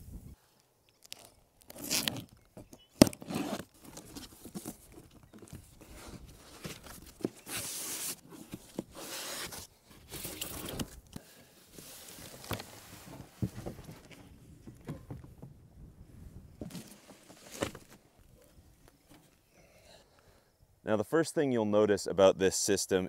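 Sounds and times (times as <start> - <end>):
packing tape tearing: 1.0 - 2.4
cardboard rustling: 3.0 - 11.0, 16.6 - 18.1
foam sheets scraping cardboard: 5.9 - 10.8.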